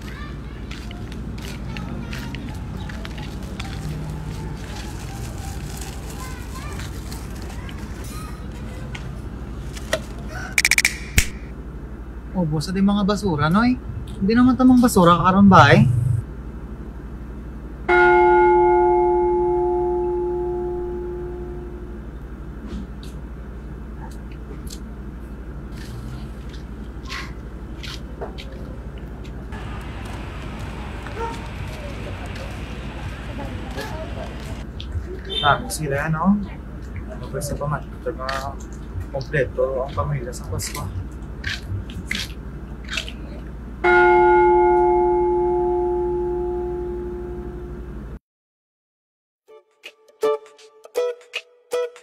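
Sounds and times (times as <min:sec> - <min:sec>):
light scuffs and clicks: 0:00.0 - 0:10.3, 0:25.7 - 0:35.4, 0:38.1 - 0:43.4
deep bell strike ringing: 0:17.9 - 0:22.0, 0:43.8 - 0:47.7.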